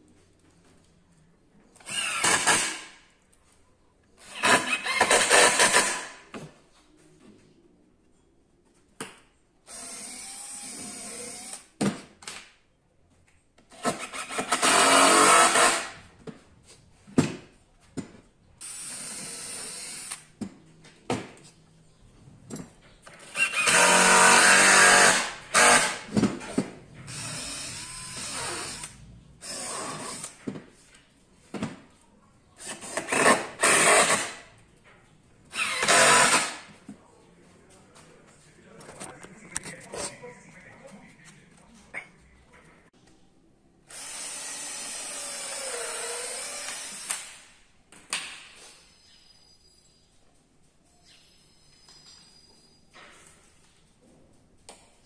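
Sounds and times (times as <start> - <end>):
power tool bursts: 1.8 - 2.9, 14.0 - 16.0, 23.3 - 26.1, 35.5 - 36.7.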